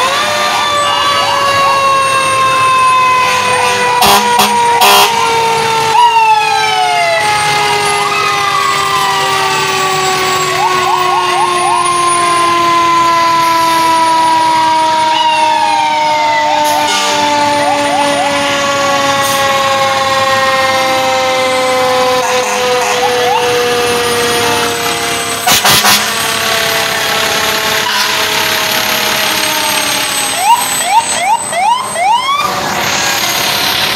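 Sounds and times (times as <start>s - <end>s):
short loud siren blasts: 0.0s - 33.0s
long falling siren wail: 0.0s - 33.9s
sweeping sirens: 0.0s - 33.9s.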